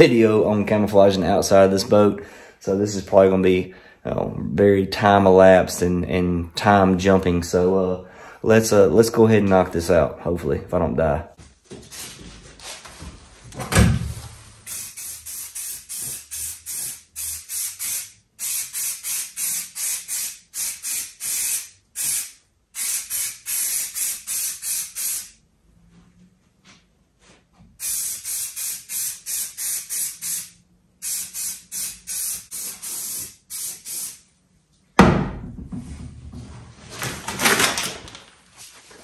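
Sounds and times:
spray paint can puffs: 14.6s - 25.4s, 27.8s - 34.3s
thump: 35.0s - 36.4s.

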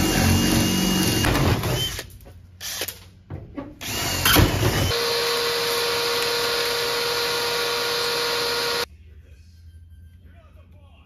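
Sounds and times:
power drill whining: 0.0s - 2.9s, 3.8s - 8.9s.

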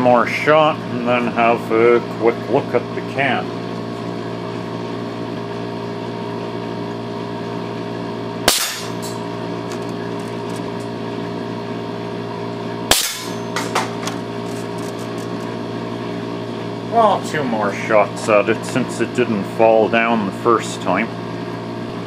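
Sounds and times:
steady hum: 0.0s - 22.0s
bb gun shots cracking: 8.5s - 9.0s, 12.9s - 14.0s.

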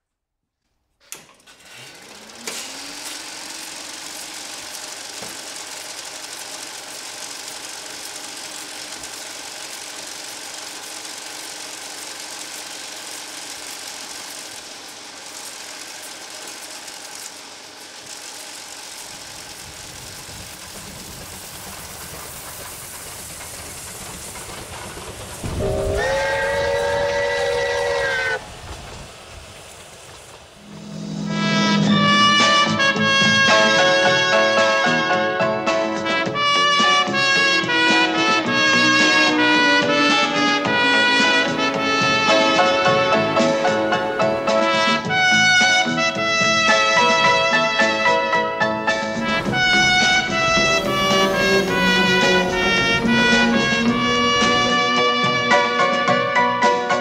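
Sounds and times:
electrical machine hum: 1.2s - 35.2s, 46.5s - 56.3s
low running rumble: 19.4s - 34.4s, 49.1s - 56.1s
train horn blowing: 25.4s - 28.5s, 30.6s - 57.0s.

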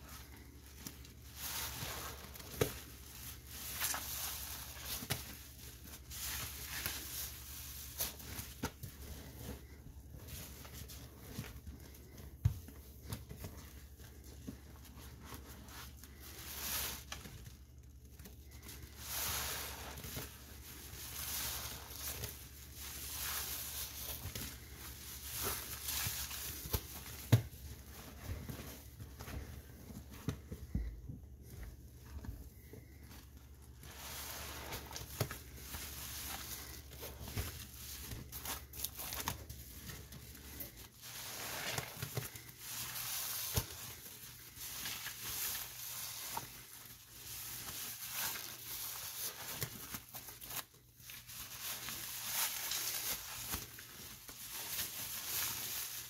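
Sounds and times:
soapy sponge being squeezed: 1.1s - 8.2s, 18.5s - 28.4s, 33.8s - 39.5s, 40.6s - 50.5s.

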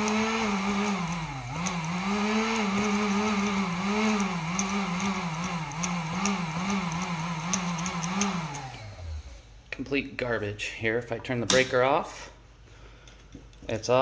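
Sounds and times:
heat gun fan motor: 0.0s - 9.6s.

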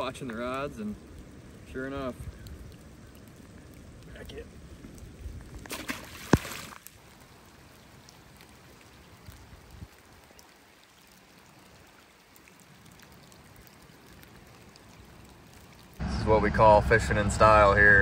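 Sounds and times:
faint rain on flowing river: 0.0s - 18.0s
fish splashing into river: 5.6s - 7.0s.

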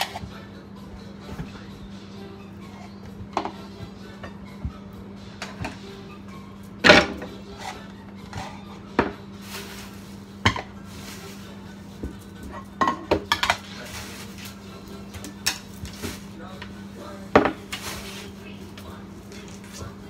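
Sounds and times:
metal bowl and utensils clinking: 12.4s - 16.2s.

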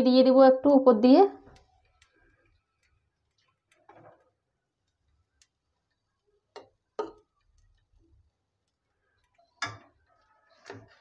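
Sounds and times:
utensil tapping metal pot: 6.5s - 7.8s, 8.7s - 10.0s.

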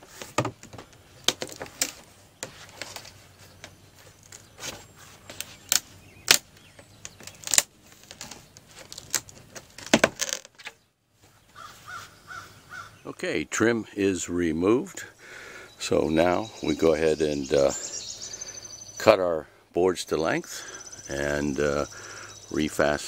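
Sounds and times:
wooden trim board cracking: 5.4s - 10.8s.

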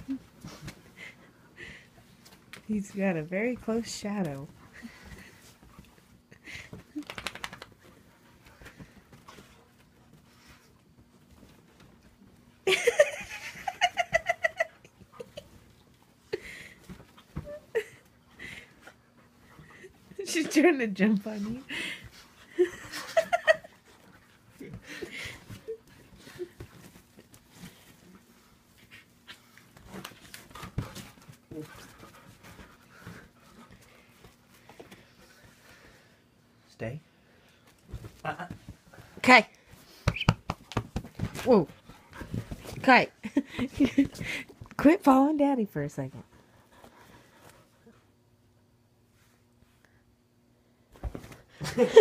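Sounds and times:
woman laughing high-pitched: 12.7s - 15.5s
bedding rustling: 37.6s - 44.8s.

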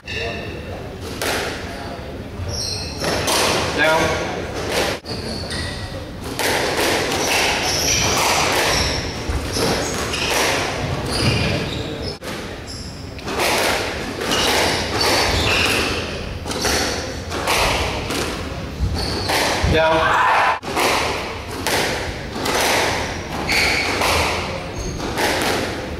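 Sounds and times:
squash ball hitting rackets and walls: 0.0s - 1.9s, 2.7s - 25.9s
shoes squeaking on court floor: 2.4s - 6.5s, 7.1s - 20.2s, 22.5s - 25.7s.

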